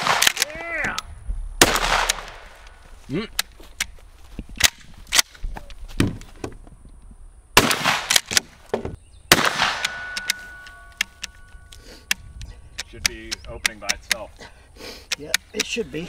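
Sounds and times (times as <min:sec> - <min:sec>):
shotgun blasts: 0:00.0 - 0:00.4, 0:01.6 - 0:02.6, 0:07.6 - 0:08.6, 0:09.3 - 0:10.4
shotgun action clicking: 0:09.6 - 0:14.2.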